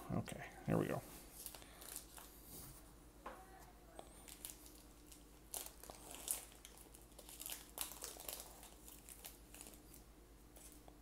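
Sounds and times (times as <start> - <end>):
foil wrapper crinkling: 1.4 - 2.4, 4.2 - 10.8.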